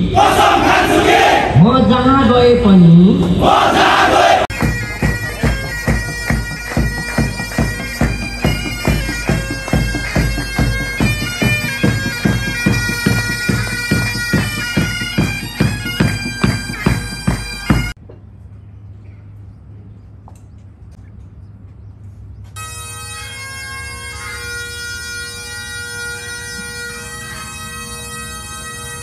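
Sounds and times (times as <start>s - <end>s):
bagpipes playing a march: 0.0s - 1.4s, 3.5s - 18.0s, 22.6s - 29.0s
bass drum beating: 4.5s - 18.0s.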